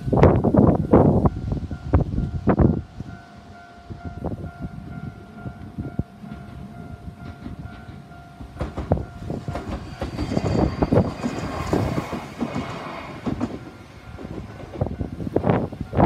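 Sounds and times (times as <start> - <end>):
crossing warning bell ringing: 0.0 - 16.0
wind buffeting microphone: 0.0 - 16.0
train wheels clacking over rail joints: 6.2 - 15.2.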